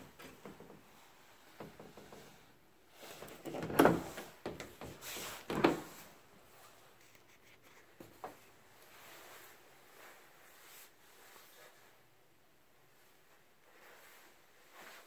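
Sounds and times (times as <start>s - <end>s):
closet doors bumping and rattling: 3.4s - 6.0s.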